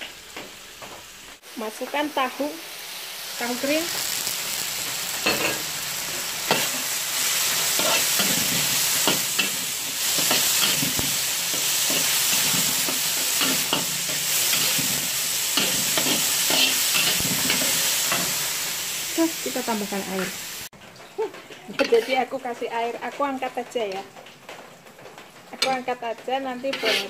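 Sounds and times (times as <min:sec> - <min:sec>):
food sizzling in hot oil: 0:00.0 - 0:27.0
metal spatula scraping a wok: 0:05.2 - 0:18.6, 0:21.8 - 0:22.3, 0:26.6 - 0:27.0.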